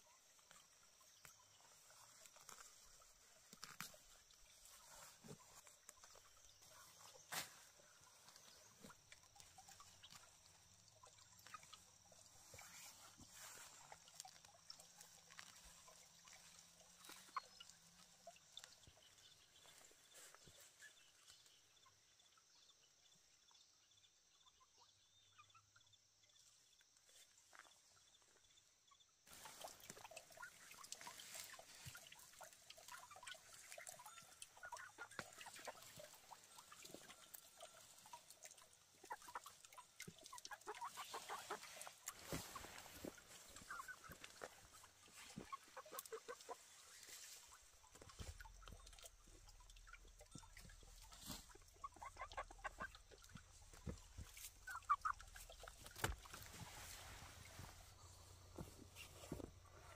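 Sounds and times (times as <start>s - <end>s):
poultry clucking: 39.0s - 47.4s, 49.6s - 56.5s.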